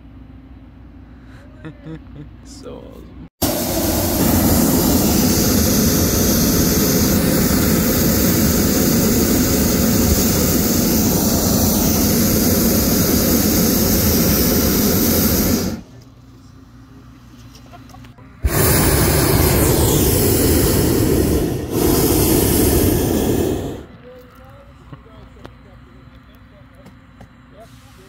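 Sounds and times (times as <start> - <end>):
propane burner blast: 3.4 - 15.9, 18.4 - 24.0.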